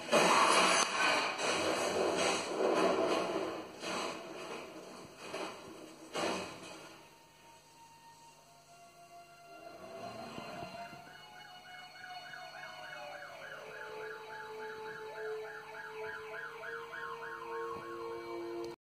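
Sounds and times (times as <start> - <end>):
steady low siren tone: 6.9 - 18.8
siren warbling quickly: 11.0 - 18.6.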